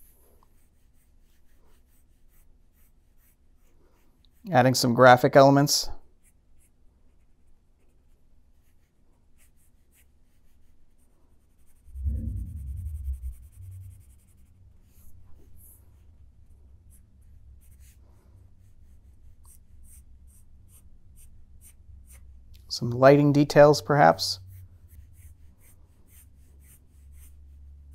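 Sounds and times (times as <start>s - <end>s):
pencil scratching on paper: 0.0s - 4.4s, 6.2s - 15.8s, 17.2s - 22.3s, 23.6s - 27.9s
low bump: 11.9s - 15.6s.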